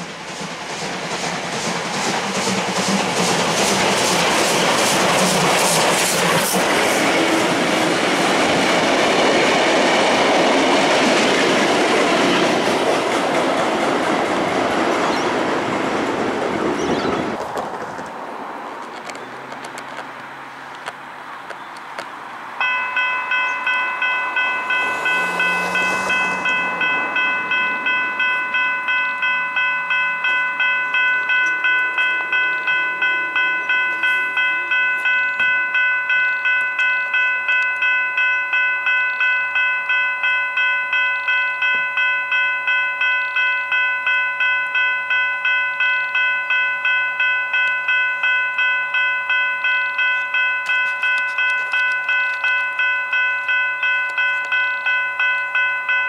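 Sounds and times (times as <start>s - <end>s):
train wheels clattering over rails: 0.0s - 18.1s
level crossing bell ringing: 22.6s - 56.0s.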